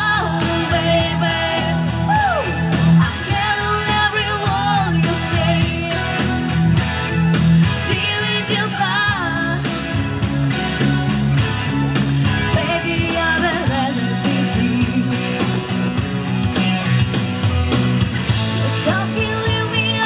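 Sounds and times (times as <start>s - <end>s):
woman singing into microphone: 0.0s - 6.4s, 7.8s - 9.8s, 12.5s - 15.5s, 18.6s - 20.0s
amplified backing music: 0.0s - 20.0s.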